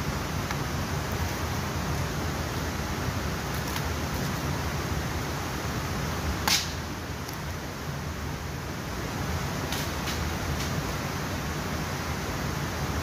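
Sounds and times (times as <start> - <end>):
sharp crack: 6.4 - 6.8.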